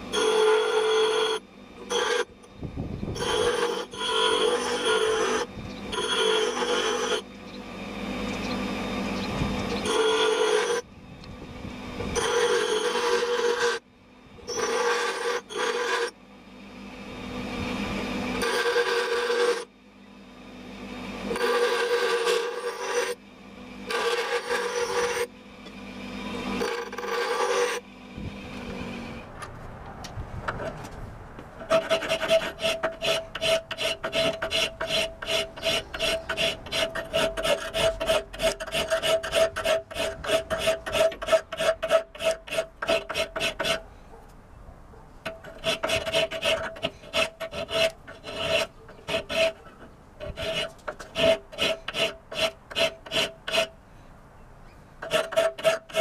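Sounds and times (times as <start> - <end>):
knife on bench grinder: 0.0 - 43.9, 45.2 - 53.8, 55.0 - 56.0
file rasping on steel blade: 0.1 - 2.3, 3.2 - 7.2, 9.6 - 10.8, 12.2 - 13.8, 14.5 - 16.2, 18.4 - 19.7, 21.3 - 23.2, 23.9 - 25.3, 26.6 - 27.8, 31.6 - 43.9, 45.2 - 53.8, 55.0 - 56.0.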